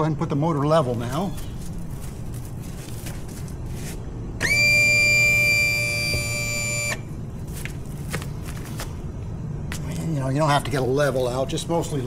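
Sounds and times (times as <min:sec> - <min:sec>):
electric motor whine: 0:04.4 - 0:07.1.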